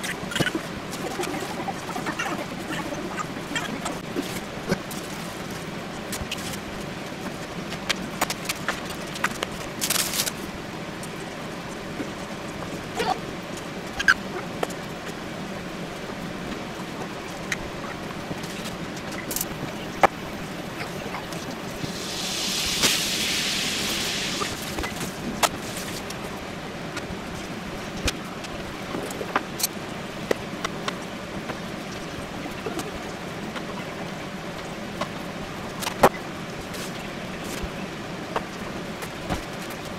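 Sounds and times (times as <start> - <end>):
steady background hiss: 9.7 - 39.9.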